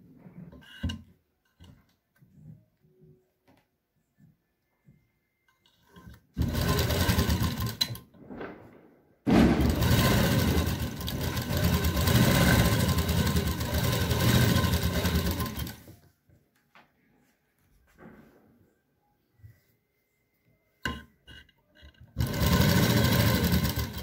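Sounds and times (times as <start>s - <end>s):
sewing machine stitching: 5.6s - 8.1s, 9.6s - 15.9s, 21.8s - 24.0s.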